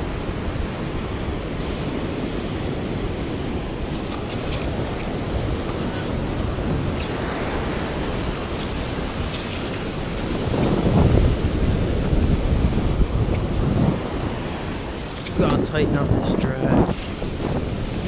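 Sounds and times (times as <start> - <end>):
ocean waves breaking on beach: 0.0 - 18.0
wind buffeting microphone: 0.0 - 18.0.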